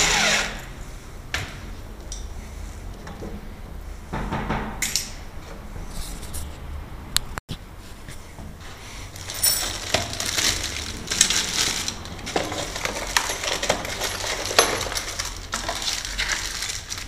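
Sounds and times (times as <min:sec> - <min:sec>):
metal lock parts clinking: 0:09.3 - 0:10.2, 0:11.2 - 0:16.1.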